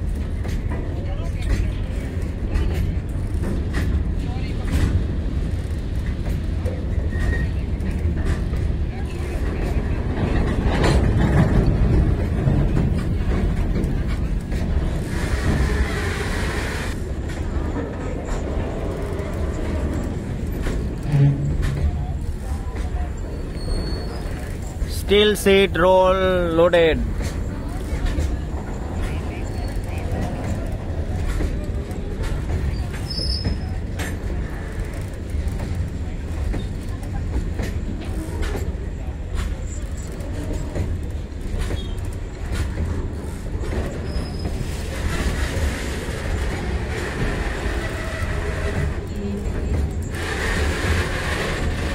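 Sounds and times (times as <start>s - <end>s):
freight train rolling past: 0.0s - 51.9s
steel wheels rumbling on rail: 0.0s - 51.9s
hiss: 15.0s - 17.0s.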